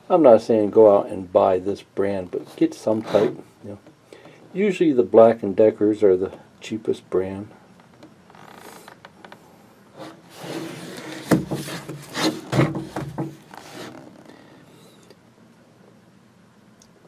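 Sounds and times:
cardboard box rubbing: 0:10.0 - 0:14.3
knocks on cardboard box: 0:11.2 - 0:13.4.

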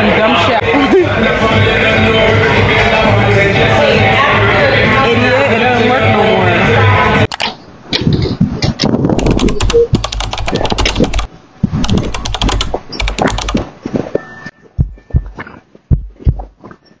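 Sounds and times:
deep thumps: 0:14.8 - 0:16.8.

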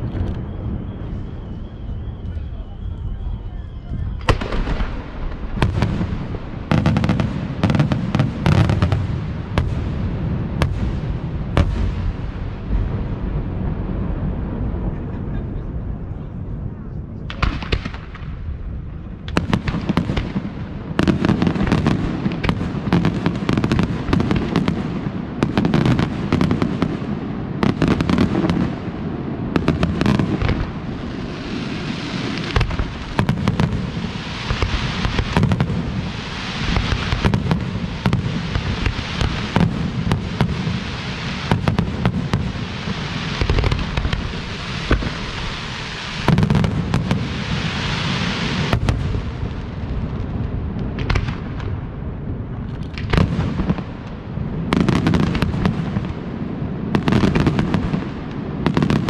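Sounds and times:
firework bursts and bangs: 0:00.0 - 0:16.0, 0:17.2 - 0:59.0
firework high hiss: 0:30.1 - 0:48.8.

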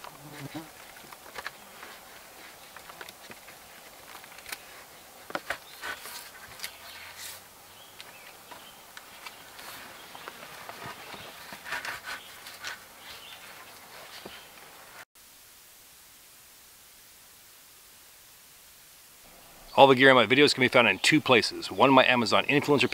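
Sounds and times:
irregular rustling: 0:00.0 - 0:15.0.

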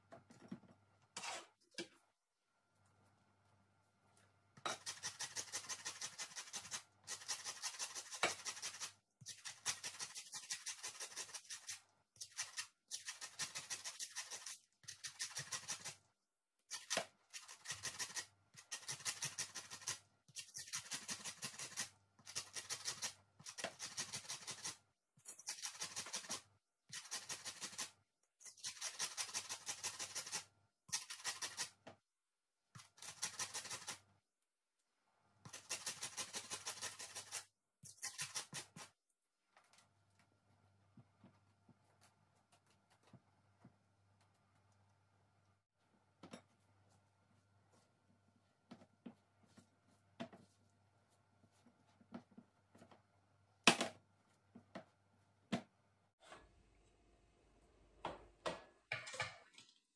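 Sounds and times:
grater rasping on lemon: 0:04.7 - 0:16.0, 0:16.7 - 0:24.8, 0:28.5 - 0:31.7, 0:35.5 - 0:38.9.

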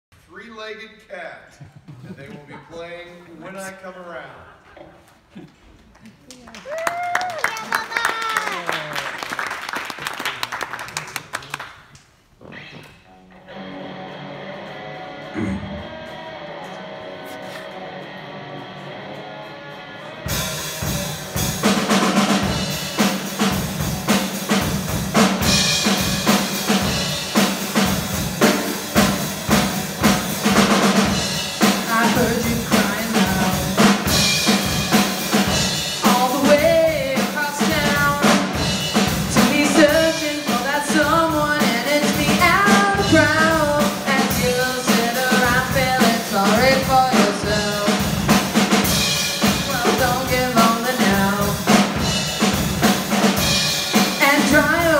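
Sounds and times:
live rock band playing: 0:13.1 - 0:54.9
person singing: 0:31.6 - 0:34.1, 0:36.0 - 0:38.5, 0:39.3 - 0:48.4, 0:49.4 - 0:51.8.

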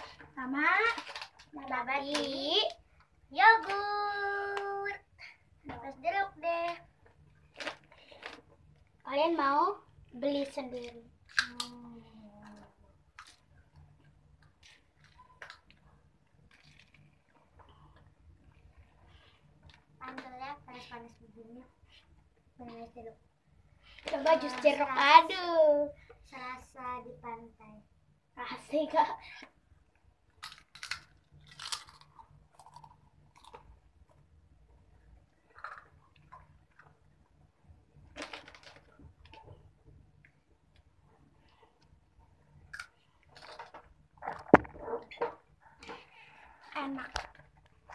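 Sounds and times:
small handling noises: 0:10.4 - 0:20.4
person chewing crunchy food: 0:30.4 - 0:33.7.

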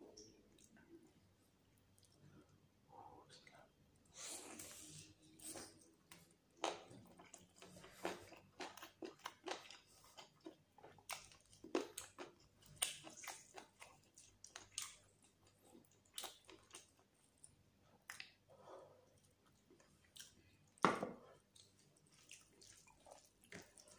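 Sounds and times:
chewing with wet mouth clicks: 0:05.8 - 0:18.5, 0:19.1 - 0:20.8, 0:21.4 - 0:23.9.

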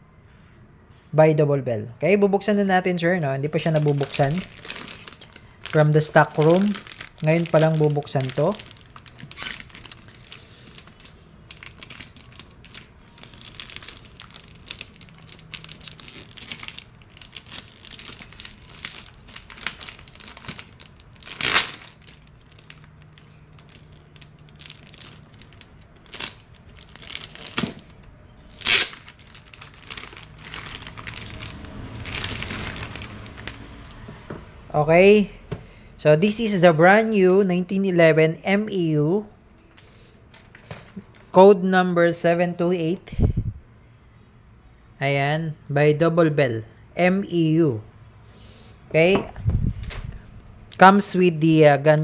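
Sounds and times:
plastic bag crinkling: 0:03.0 - 0:34.1.

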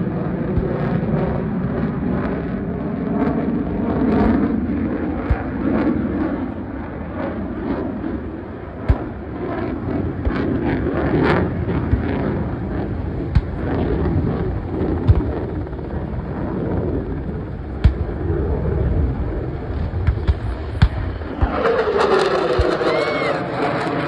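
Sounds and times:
aircraft engines rumbling: 0:00.0 - 0:24.0
wind on microphone: 0:00.0 - 0:24.0
pyrotechnic explosion bangs: 0:08.8 - 0:09.4, 0:17.7 - 0:22.9.

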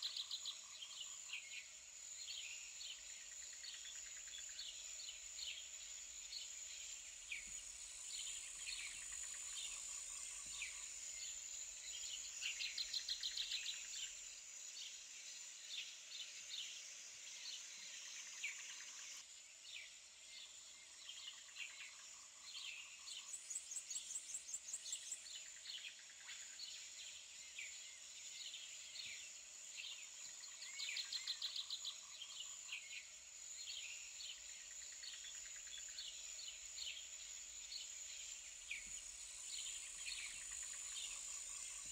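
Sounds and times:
small birds chirping: 0:27.5 - 0:41.9.

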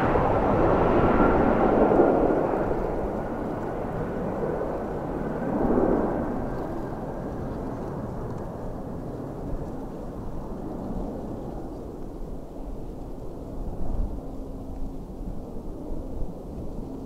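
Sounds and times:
jet engines rumbling with high whine: 0:00.0 - 0:17.0.

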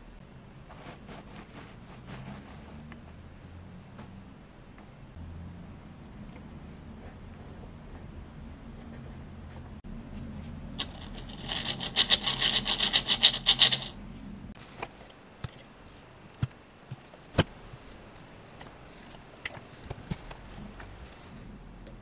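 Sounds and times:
gritty rattling bearing whir: 0:10.8 - 0:14.0.

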